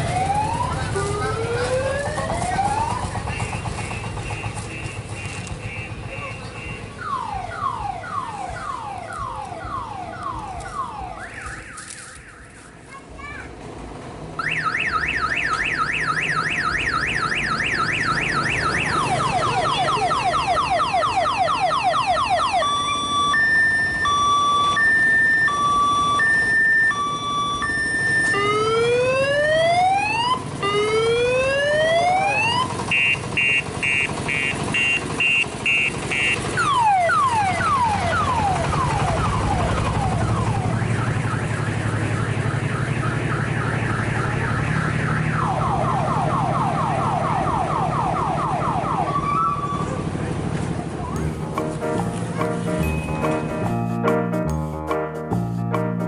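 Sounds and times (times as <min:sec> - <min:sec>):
low engine rumble: 0:00.0 - 0:11.6, 0:15.2 - 0:56.0
electronic siren horn: 0:14.4 - 0:50.0.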